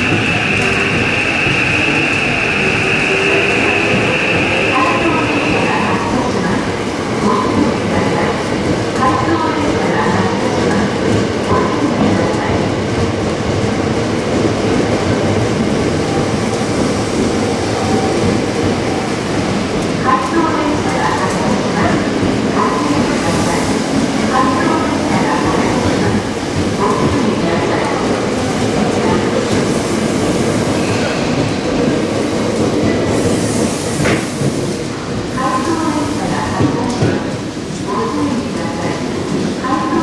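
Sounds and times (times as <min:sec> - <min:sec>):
electric train running past: 0:00.0 - 0:08.9
train wheels rolling on rail: 0:00.0 - 0:40.0.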